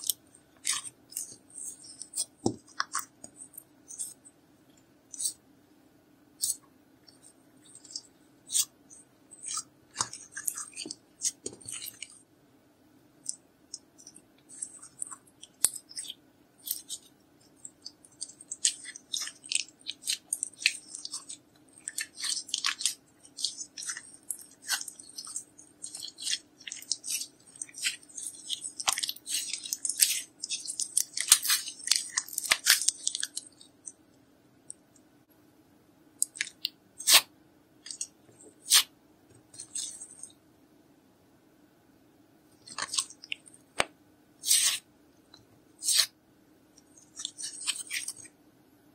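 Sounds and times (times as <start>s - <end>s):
slime squeezed by hand: 44.4s - 44.8s.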